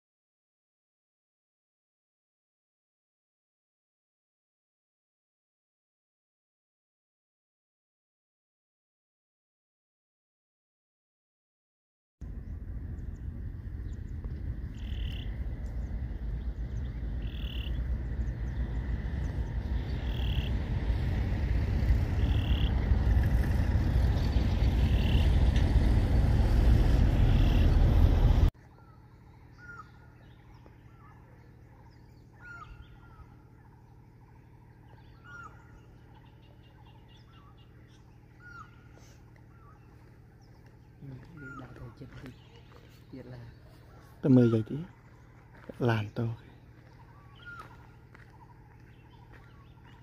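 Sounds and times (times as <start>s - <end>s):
loud low rumbling: 12.2s - 44.2s
quiet forest background: 12.2s - 50.0s.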